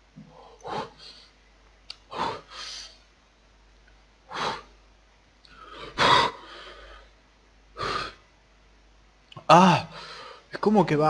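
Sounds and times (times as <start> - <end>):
man gasping and puffing: 0.2 - 1.3, 2.0 - 3.0, 4.3 - 4.8, 5.5 - 7.1, 7.8 - 8.2.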